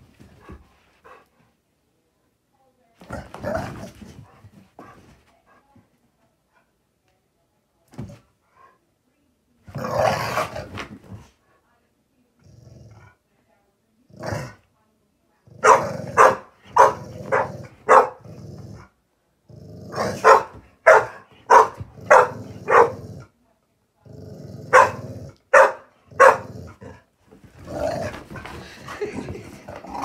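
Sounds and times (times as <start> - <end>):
dogs growling: 15.4 - 23.3, 24.0 - 30.0
dogs barking: 15.6 - 18.2, 20.1 - 23.0, 24.7 - 26.5.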